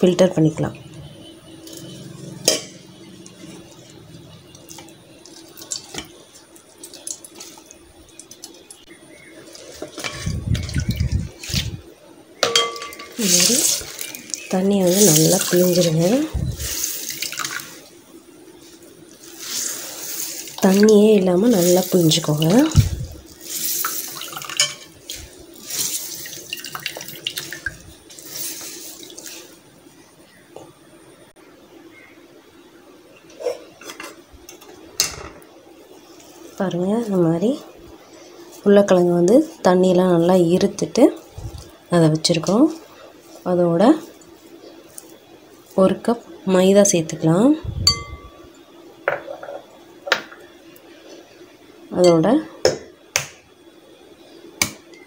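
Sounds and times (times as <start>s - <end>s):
water trickling into a steel bowl: 3.2s - 11.6s, 12.5s - 17.9s, 19.3s - 29.6s
wet cloth rustling: 18.6s - 29.7s.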